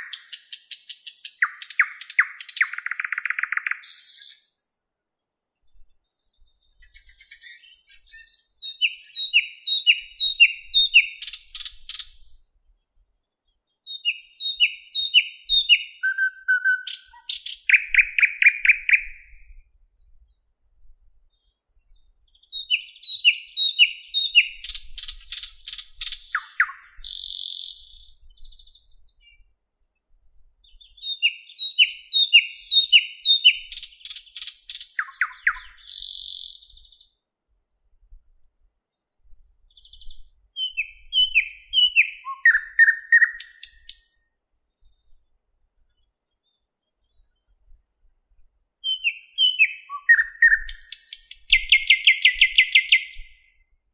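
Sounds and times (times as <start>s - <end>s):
bird singing whistles and rattles: 0.0s - 4.5s, 6.8s - 12.4s, 13.9s - 19.5s, 22.5s - 36.9s, 39.8s - 44.0s, 48.8s - 53.5s.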